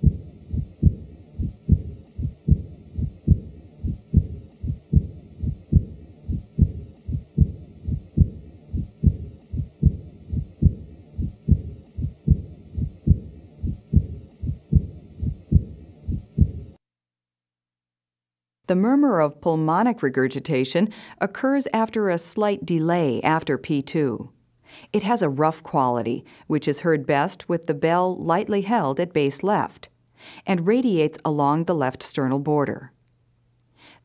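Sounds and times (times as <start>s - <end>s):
heartbeat: 0.0s - 16.8s
soft heart murmur: 0.0s - 16.8s.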